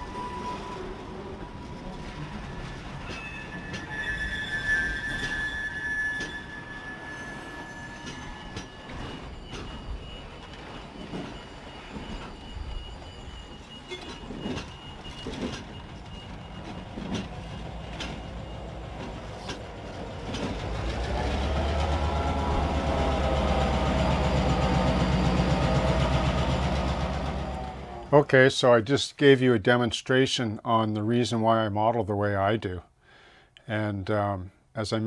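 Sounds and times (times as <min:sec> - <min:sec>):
high wheel squeal: 0:00.0 - 0:28.2
diesel locomotive engine: 0:00.0 - 0:28.5
freight train cars rolling: 0:00.0 - 0:28.5
wheels clicking over rail joints: 0:07.9 - 0:28.1.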